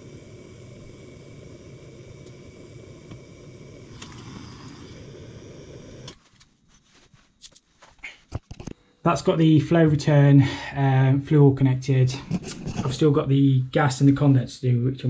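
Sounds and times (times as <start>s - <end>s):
blowtorch flame burning: 0.0s - 6.5s, 12.1s - 13.2s.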